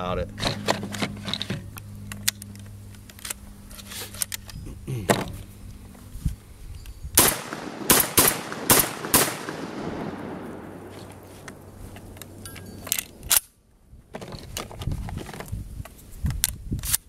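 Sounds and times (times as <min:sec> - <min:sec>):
shotgun shots: 0:07.2 - 0:11.2
metallic clicks of shotgun loading: 0:11.4 - 0:13.5.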